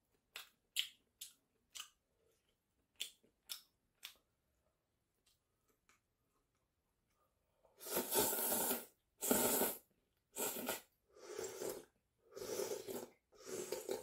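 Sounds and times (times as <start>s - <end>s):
person slurping noodles: 7.8s - 14.0s.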